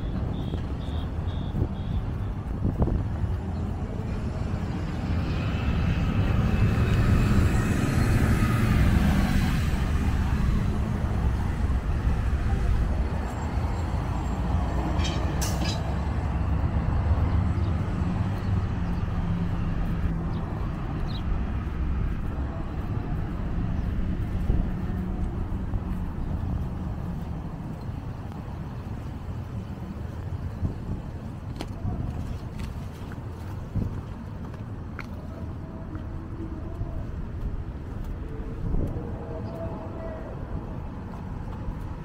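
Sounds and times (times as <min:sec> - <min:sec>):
city traffic rumbling: 0:00.0 - 0:42.0
heavy vehicle passing with whine: 0:02.3 - 0:31.0.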